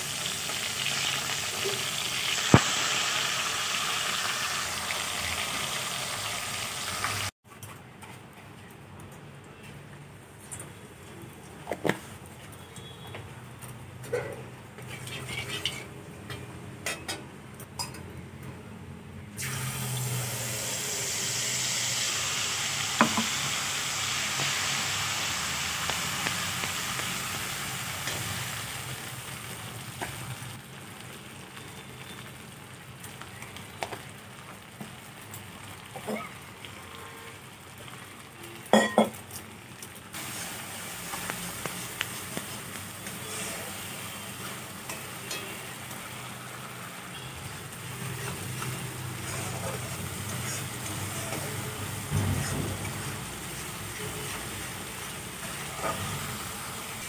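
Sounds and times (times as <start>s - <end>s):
paste sizzling in hot oil: 0.0s - 7.3s, 19.4s - 30.6s, 40.1s - 57.0s
metal spatula scraping wok: 14.8s - 16.5s, 47.9s - 56.6s.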